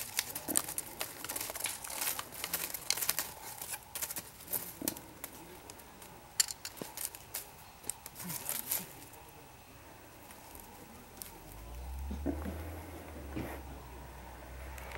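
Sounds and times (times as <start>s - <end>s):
dry leaves crackling underfoot: 0.0s - 9.4s, 10.2s - 12.6s.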